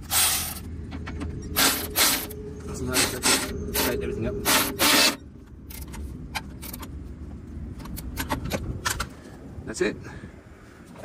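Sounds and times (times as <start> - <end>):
tool scraping and ratcheting: 3.0 - 6.9.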